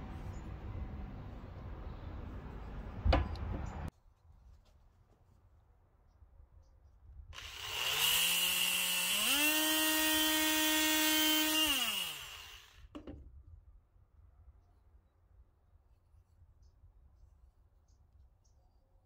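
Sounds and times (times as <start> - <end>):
oscillating multi-tool buzzing whine: 7.4 - 12.9.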